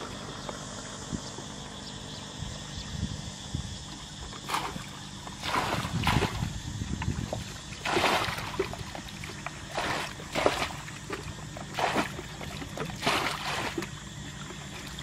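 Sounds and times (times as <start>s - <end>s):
water splashing from buckets: 4.4s - 15.0s.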